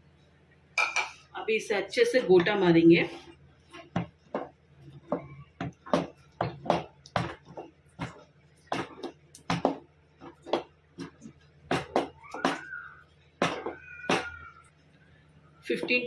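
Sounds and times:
wooden spoon knocking in a pot: 0:03.8 - 0:12.8, 0:13.4 - 0:14.5.

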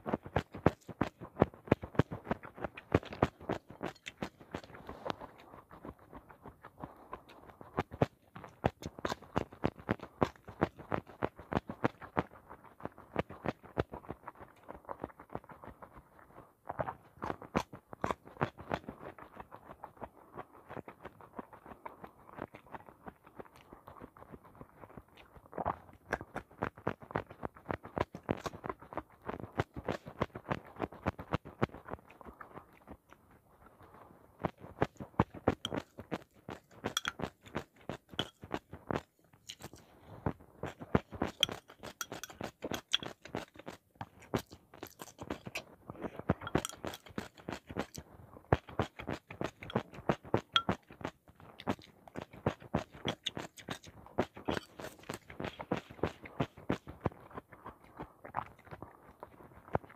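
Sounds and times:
crunching and chewing food: 0:00.0 - 0:59.9
spoon clinking against bowl: 0:36.9 - 0:37.2, 0:41.4 - 0:43.1, 0:46.5 - 0:47.1.

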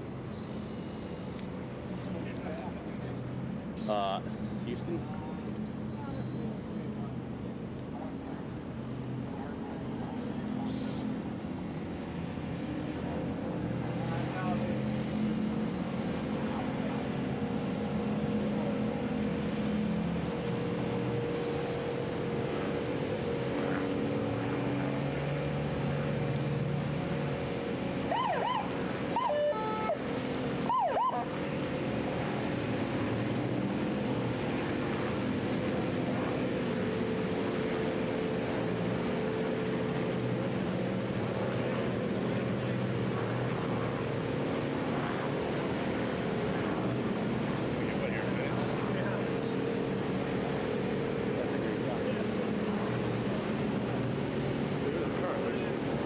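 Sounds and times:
boat engines running: 0:00.0 - 0:56.0
water noise: 0:00.0 - 0:56.0
siren whoops: 0:28.1 - 0:30.0, 0:30.6 - 0:31.3.

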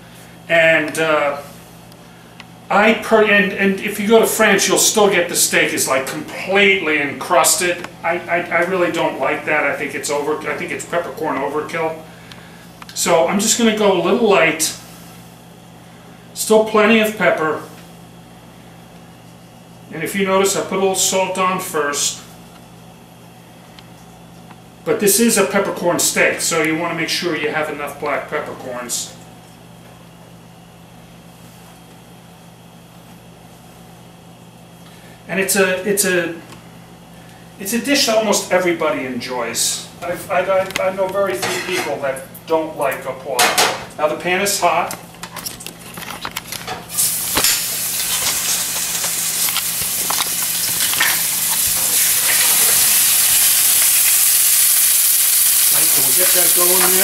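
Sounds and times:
low hum with hiss: 0:00.0 - 0:57.0
steak sizzling in pan: 0:46.9 - 0:57.0.

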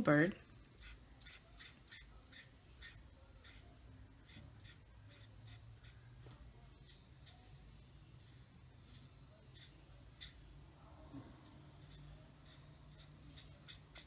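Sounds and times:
marker scratching on cardstock: 0:00.8 - 0:06.1, 0:06.8 - 0:07.5, 0:08.2 - 0:10.5, 0:11.4 - 0:14.0.

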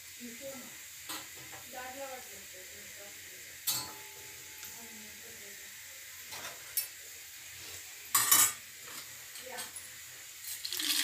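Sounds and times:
metal kitchen utensils clinking: 0:03.6 - 0:04.8, 0:06.3 - 0:07.0, 0:08.1 - 0:10.7.

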